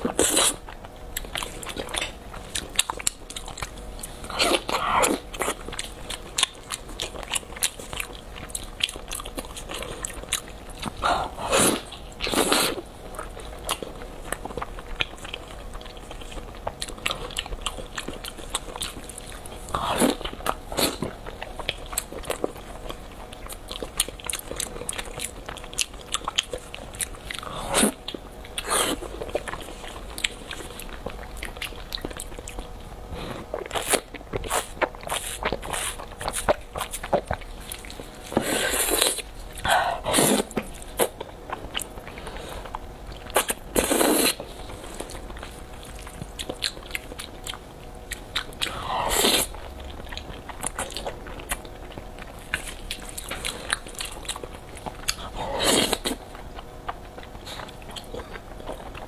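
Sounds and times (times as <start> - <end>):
chewing with wet mouth clicks: 0.0 - 11.0, 11.8 - 32.8, 33.4 - 38.4, 40.4 - 59.0
slurping noodles: 40.0 - 40.5, 43.8 - 44.4, 49.0 - 49.5, 55.4 - 56.2.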